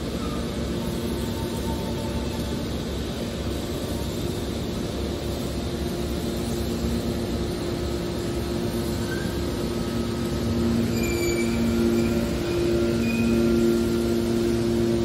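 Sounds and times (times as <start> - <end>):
hydraulic machine drone: 5.8 - 15.0
short high squeaks: 10.8 - 13.9.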